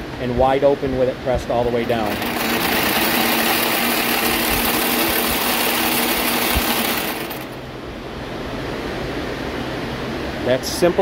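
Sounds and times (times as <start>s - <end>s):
braiding machine running: 1.2s - 7.8s
machine running down: 1.4s - 7.7s.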